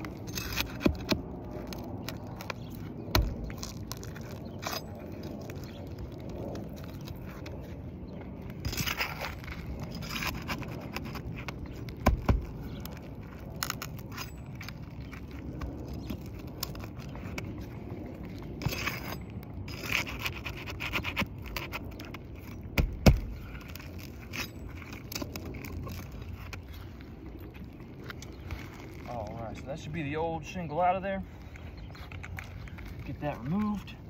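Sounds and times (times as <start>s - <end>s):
pry bar scraping shingles: 0.0s - 7.8s, 8.4s - 26.8s.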